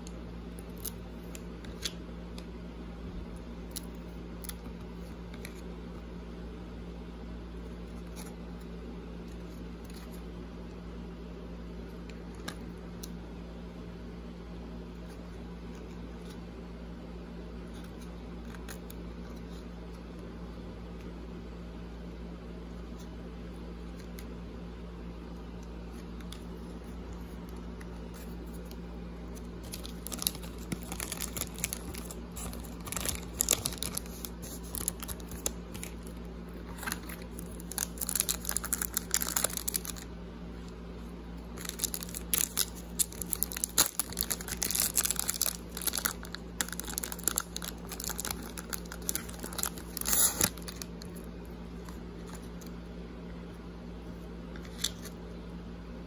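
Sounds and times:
steady low hum: 0:00.0 - 0:56.0
wrapper tearing and crinkling: 0:29.6 - 0:40.1, 0:41.6 - 0:51.2.

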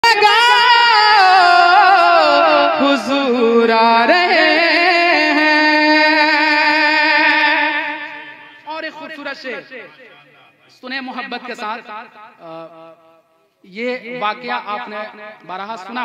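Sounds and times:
person singing wordlessly: 0:00.0 - 0:08.1.

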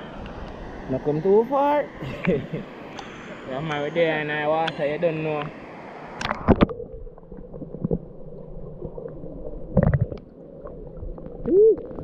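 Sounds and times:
water sloshing and splashing: 0:06.2 - 0:12.0.

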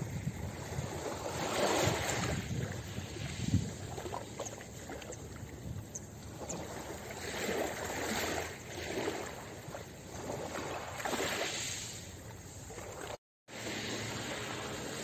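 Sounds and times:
waves washing onto pebble beach: 0:13.5 - 0:15.0.

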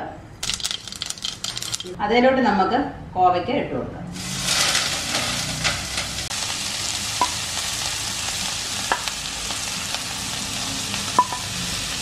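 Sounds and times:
food sizzling in hot oil: 0:04.1 - 0:12.0.

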